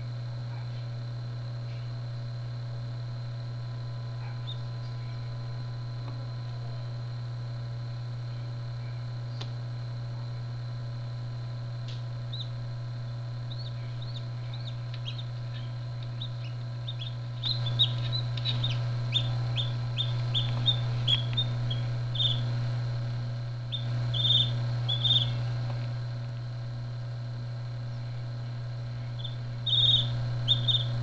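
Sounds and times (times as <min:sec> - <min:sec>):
steady low hum: 0:00.0 - 0:31.0
chick peeping: 0:13.5 - 0:22.5, 0:23.7 - 0:25.4, 0:29.2 - 0:31.0.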